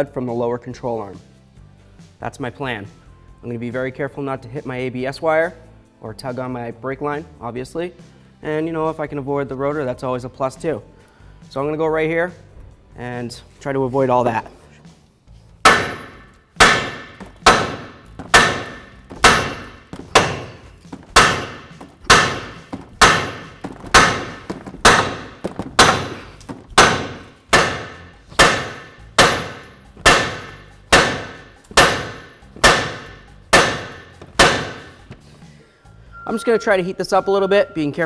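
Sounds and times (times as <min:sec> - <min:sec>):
hammer blows on steel: 0:15.6 - 0:35.1.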